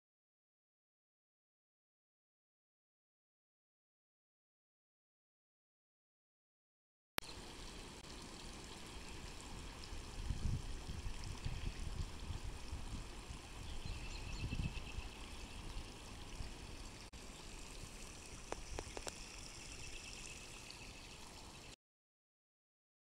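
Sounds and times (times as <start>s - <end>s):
fountain water splashing: 7.2s - 21.8s.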